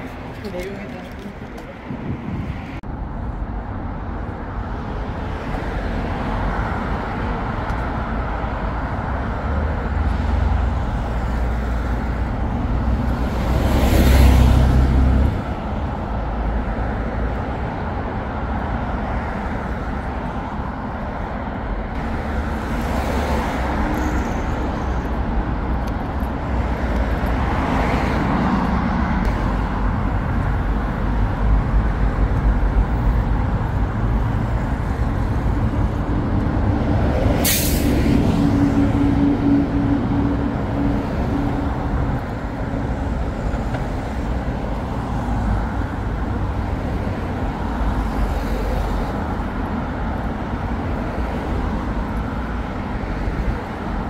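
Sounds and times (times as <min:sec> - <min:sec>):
traffic rumble: 0:00.0 - 0:54.0.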